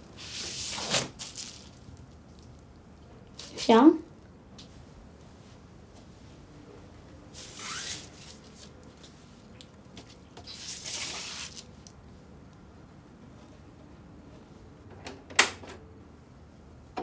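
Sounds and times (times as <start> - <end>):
record sleeve rustling: 10.0 - 11.7.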